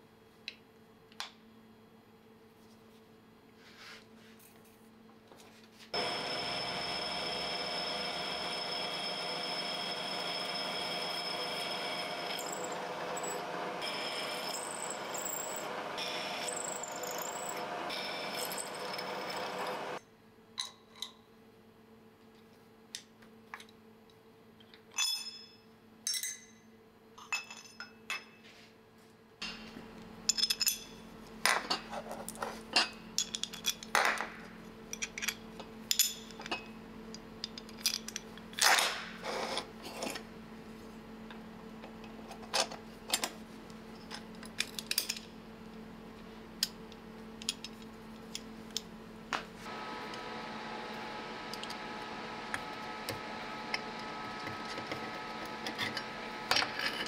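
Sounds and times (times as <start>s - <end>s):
steady mechanical hum: 0.0s - 57.0s
metal tools clinking: 30.3s - 31.0s.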